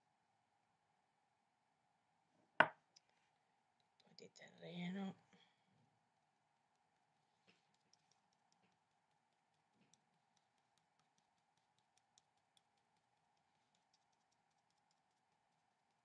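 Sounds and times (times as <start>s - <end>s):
faint steady hum: 0.0s - 16.0s
paintbrush ticking on paper: 6.6s - 16.0s.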